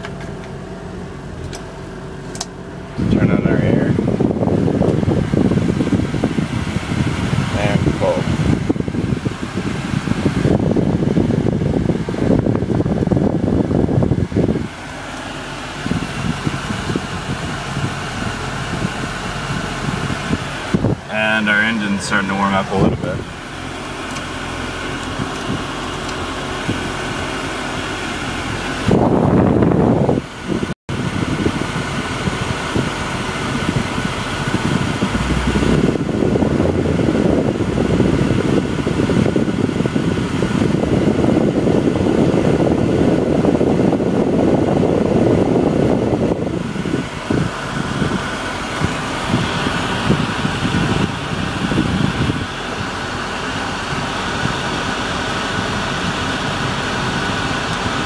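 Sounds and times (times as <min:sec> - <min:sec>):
blower fan running: 0:00.0 - 0:58.0
car engine at fast idle: 0:00.0 - 0:58.0
loud rushing noise: 0:33.7 - 0:39.3.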